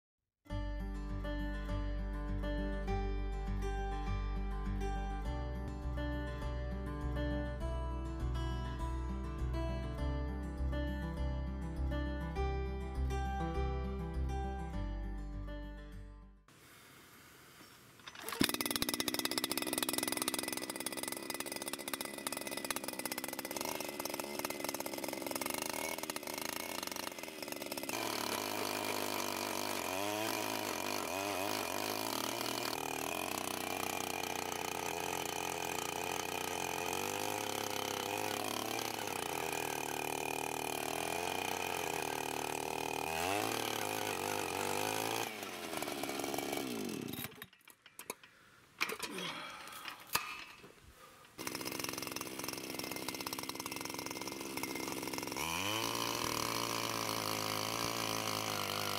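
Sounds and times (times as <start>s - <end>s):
petrol auger engine boring: 18.0s - 58.9s.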